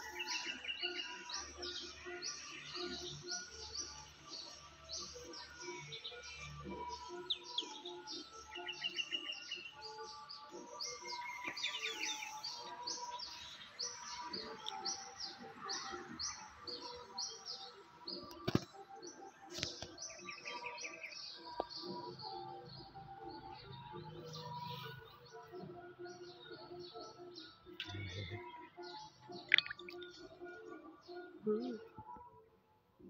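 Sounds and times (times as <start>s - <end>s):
small birds chirping: 0.0s - 32.3s.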